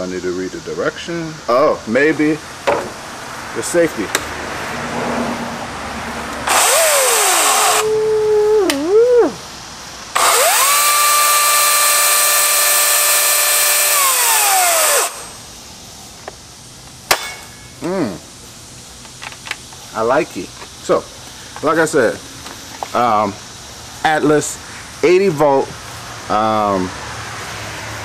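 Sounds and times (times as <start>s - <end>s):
battery chainsaw motor whine: 6.4s - 9.3s, 10.1s - 15.5s.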